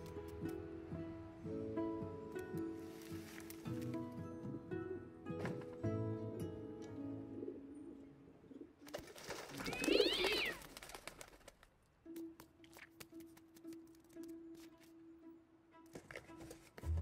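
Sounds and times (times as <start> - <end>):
soft film score music: 0.0 - 8.9, 11.7 - 17.0
pigeons wings flapping: 8.8 - 11.7.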